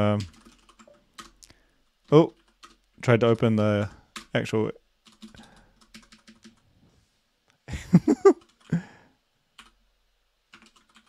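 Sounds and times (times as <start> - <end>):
computer keyboard typing: 0.0 - 2.9, 3.6 - 4.3, 5.0 - 6.6, 8.3 - 8.8, 9.6 - 9.8, 10.5 - 11.0
person chuckling: 7.7 - 9.0.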